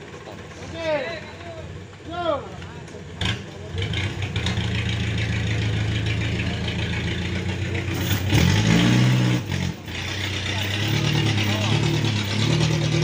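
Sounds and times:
vehicle engine revving: 0:03.1 - 0:13.0.

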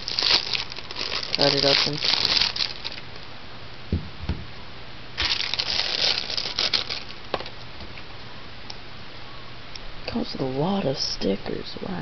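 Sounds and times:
plastic bag rustling: 0:00.0 - 0:03.2, 0:05.2 - 0:07.5
soft thumps: 0:03.9 - 0:04.5.

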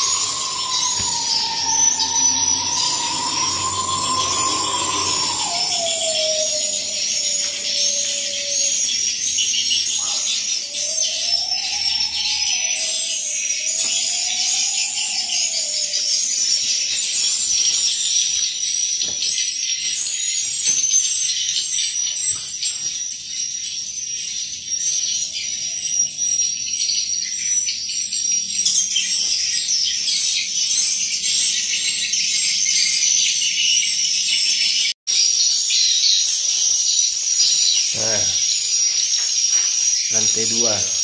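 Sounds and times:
birds twittering: 0:00.0 - 0:17.0, 0:37.0 - 0:41.0.

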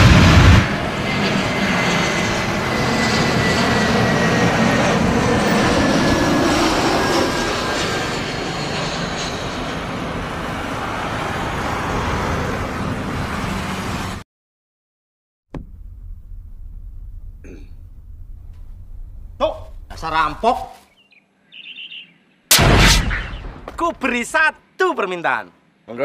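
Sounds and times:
jet engines running: 0:00.0 - 0:14.2, 0:15.7 - 0:20.6.

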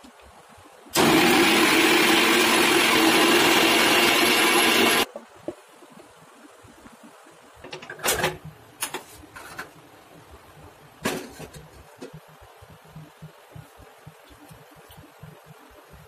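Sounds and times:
cookware and utensils clattering: 0:07.7 - 0:09.8, 0:11.0 - 0:12.2.

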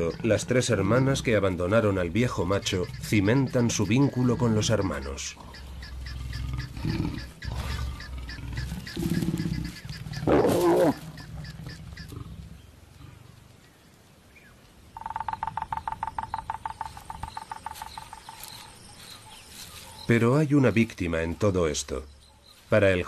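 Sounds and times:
lion snarling: 0:00.0 - 0:13.4
lions growling: 0:00.0 - 0:13.4
cricket chirping: 0:14.9 - 0:20.1.

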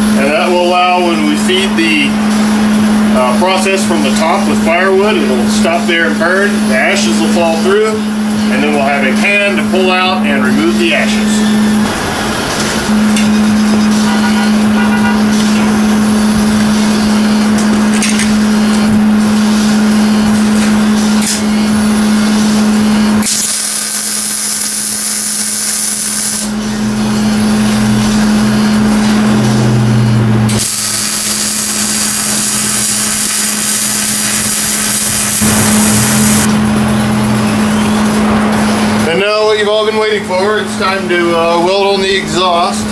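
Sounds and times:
steady hum: 0:00.0 - 0:42.9
arc welding crackling sizzle: 0:23.2 - 0:26.5, 0:30.5 - 0:36.5.

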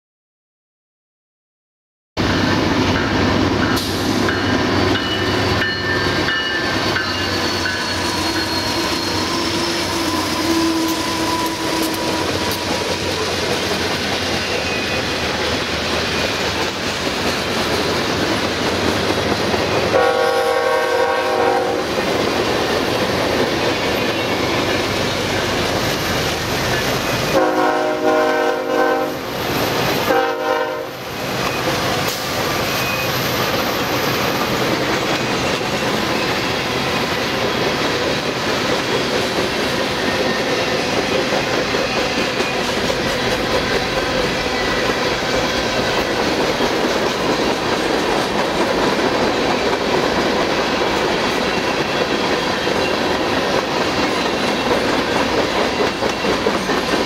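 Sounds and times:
freight train wheels rumbling: 0:02.2 - 0:57.0
high squealing of wheels: 0:04.3 - 0:17.4, 0:23.4 - 0:27.4, 0:31.1 - 0:38.2
locomotive horn blast: 0:19.9 - 0:21.9, 0:27.3 - 0:29.3, 0:30.1 - 0:31.0.

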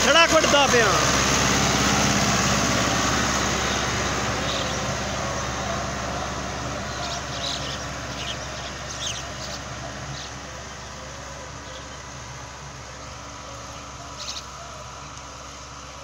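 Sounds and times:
tractor diesel engine under load: 0:00.0 - 0:16.0.

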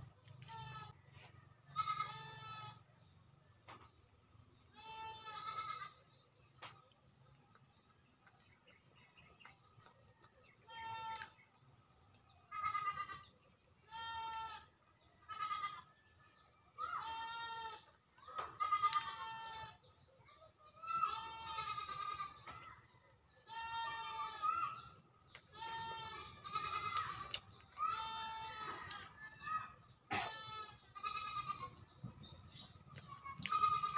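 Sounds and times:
livestock bleating: 0:00.4 - 0:02.9, 0:04.7 - 0:06.0, 0:12.5 - 0:15.9, 0:16.8 - 0:19.8, 0:21.0 - 0:22.4, 0:23.4 - 0:24.7, 0:25.5 - 0:29.5, 0:30.1 - 0:31.8, 0:33.4 - 0:33.9.

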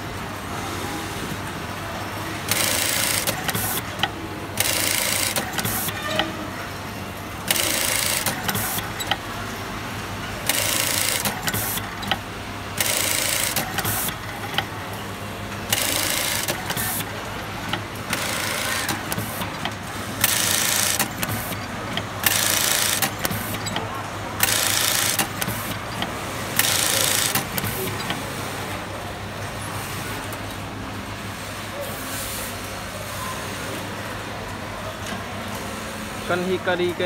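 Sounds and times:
sewing machine stitching bursts: 0:02.4 - 0:06.2, 0:07.4 - 0:09.3, 0:10.4 - 0:14.7, 0:15.7 - 0:28.4.

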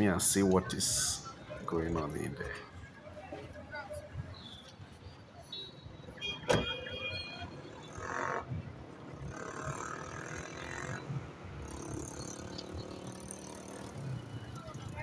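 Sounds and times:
people's voices: 0:00.0 - 0:05.4
vehicle background noise: 0:00.0 - 0:15.0.

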